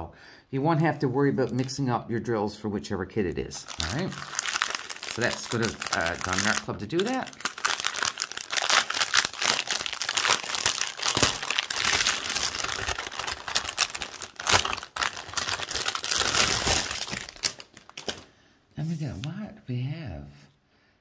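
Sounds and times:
plastic packaging crinkling: 3.6 - 18.3.

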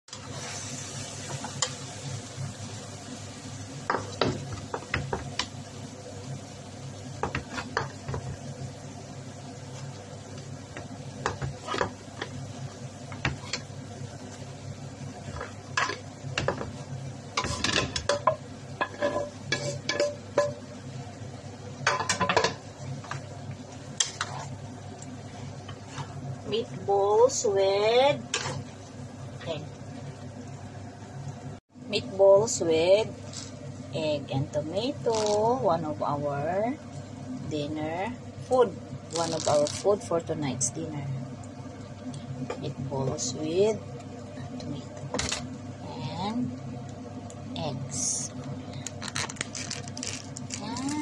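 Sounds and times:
low background hum: 0.1 - 51.0
utensil scraping a skillet: 17.4 - 20.6, 25.7 - 26.2.

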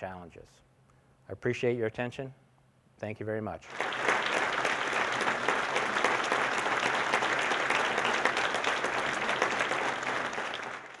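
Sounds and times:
audience clapping: 3.7 - 11.0.

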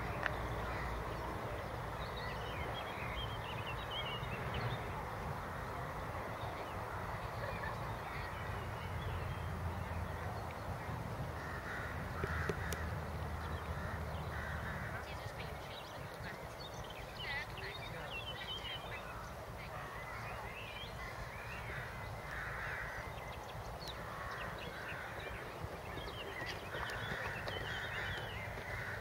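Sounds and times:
bird calls: 11.4 - 29.0.

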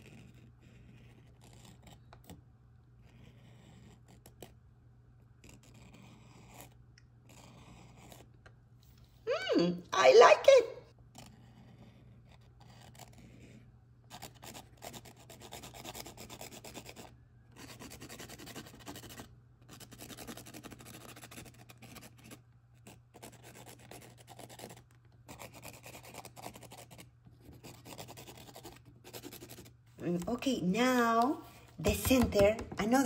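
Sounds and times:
marker rubbing on canvas: 0.0 - 2.3, 11.2 - 33.0.

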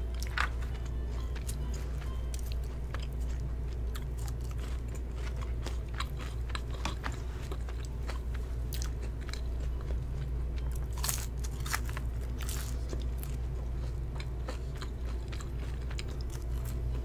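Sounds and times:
chewing crunchy fries: 0.0 - 17.0
steady low hum: 0.0 - 17.0.

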